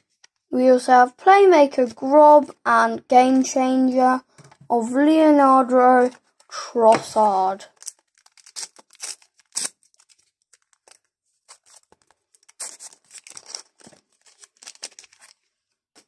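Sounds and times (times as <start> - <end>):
wrapper tearing and crinkling: 7.6 - 15.5.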